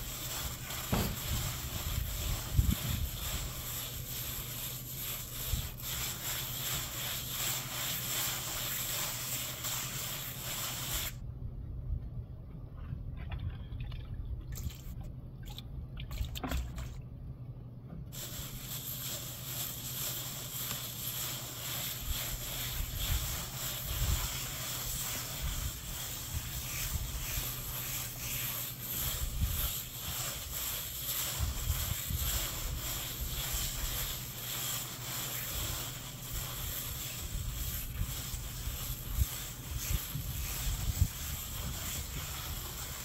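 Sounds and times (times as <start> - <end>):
trowel scraping wet stucco: 0.0 - 11.2, 18.2 - 43.0
wind rumbling on microphone: 1.0 - 3.6, 39.0 - 43.0.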